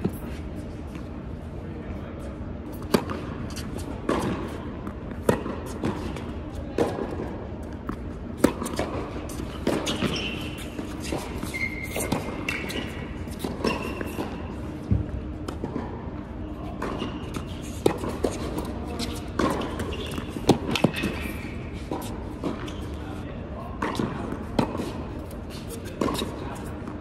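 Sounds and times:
racquets striking tennis ball: 0:02.7 - 0:16.0, 0:16.8 - 0:23.0, 0:23.8 - 0:27.0
sneakers squeaking on court: 0:08.6 - 0:14.4, 0:16.8 - 0:23.2.

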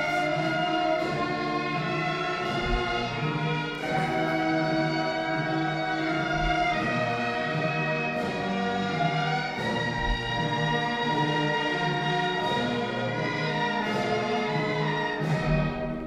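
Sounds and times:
deep low thumps: 0:02.4 - 0:07.7, 0:08.9 - 0:11.4.

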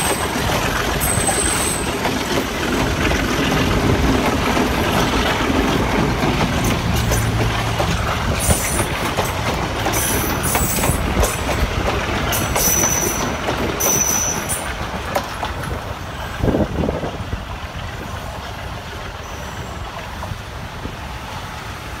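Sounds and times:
train wheels rumbling on rails: 0:00.0 - 0:22.0
high-pitched wheel squeals: 0:12.6 - 0:14.6.

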